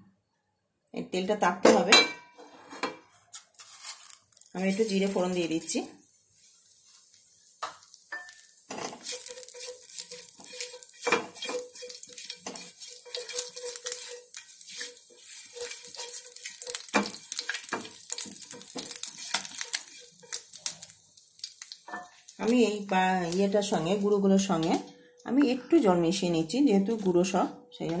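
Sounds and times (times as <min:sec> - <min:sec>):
seeds sizzling in hot oil: 0:03.6 - 0:24.7
spatula scraping and knocking pan: 0:07.6 - 0:20.9.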